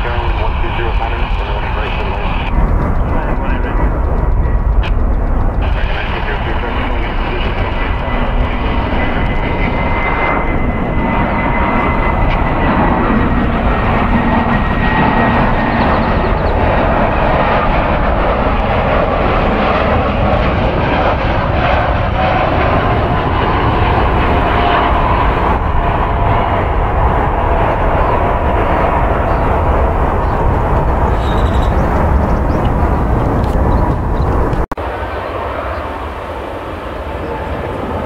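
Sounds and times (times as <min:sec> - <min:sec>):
high jet engine whine: 0:00.0 - 0:38.0
jet airliner rushing noise: 0:00.0 - 0:38.0.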